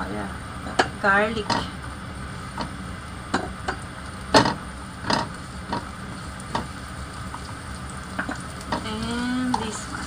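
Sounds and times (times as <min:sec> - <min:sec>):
garlic sizzling in oil: 0:00.3 - 0:10.0.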